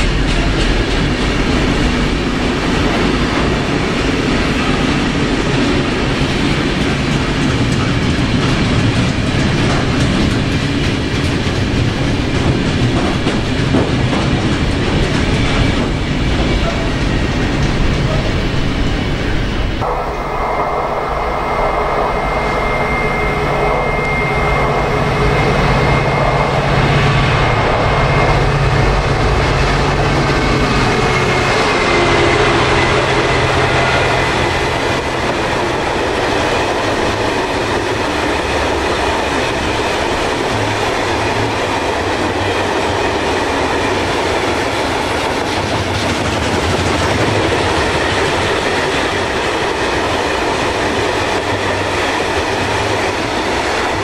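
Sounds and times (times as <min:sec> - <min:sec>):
train wheels on rails: 0:00.0 - 0:54.0
faint high tone: 0:19.8 - 0:26.6.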